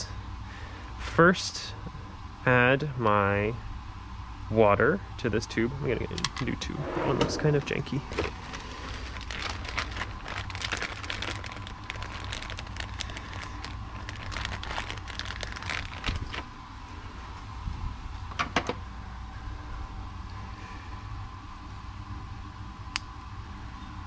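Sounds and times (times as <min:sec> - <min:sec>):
plastic bag crinkling: 0:08.0 - 0:16.5.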